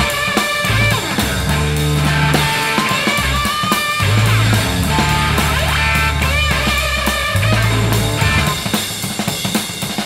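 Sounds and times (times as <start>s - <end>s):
electric guitar: 0.0s - 9.4s
sustained bass notes: 0.7s - 2.6s, 3.2s - 8.8s
drum hits: 4.0s - 9.3s.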